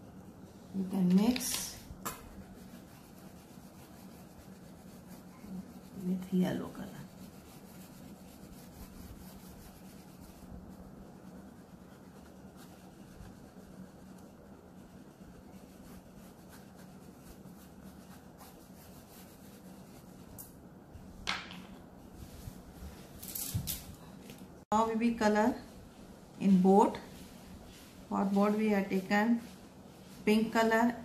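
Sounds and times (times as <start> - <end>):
oil pastel scratching on paper: 0.0 - 20.4
faint steady hum: 0.0 - 31.0.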